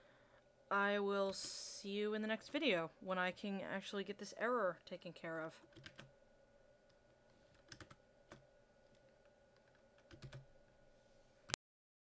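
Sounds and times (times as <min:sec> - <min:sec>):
low steady hum: 0:00.0 - 0:11.6
keyboard keystrokes: 0:07.5 - 0:09.0, 0:09.6 - 0:10.5.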